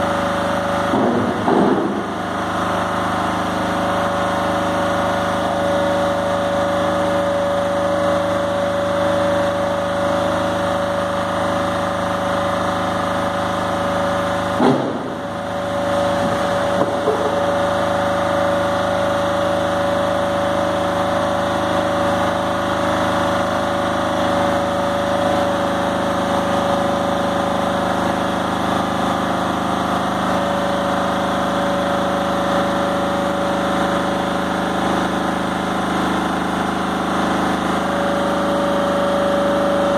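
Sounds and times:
engine hum: 0.0 - 39.9
hydraulic whine: 0.0 - 39.9
sudden knock: 14.6 - 15.1.

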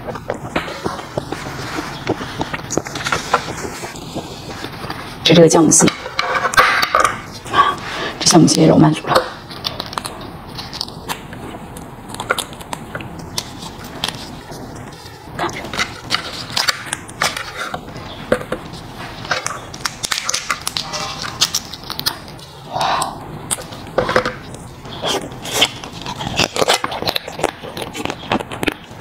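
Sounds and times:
crab shell crackling: 0.0 - 5.2, 9.4 - 29.0
wet sucking and chewing: 9.2 - 29.0.

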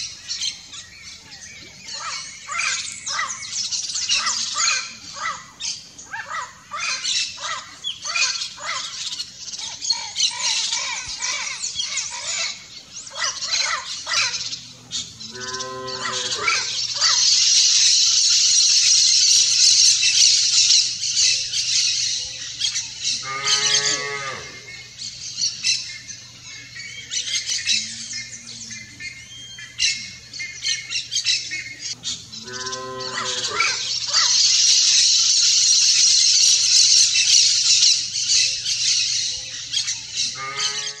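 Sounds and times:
parrots squawking: 1.9 - 14.6, 15.2 - 17.8, 29.0 - 35.1, 36.4 - 41.0
cow mooing: 15.0 - 16.7, 23.2 - 24.8, 32.0 - 33.8, 40.4 - 41.0.

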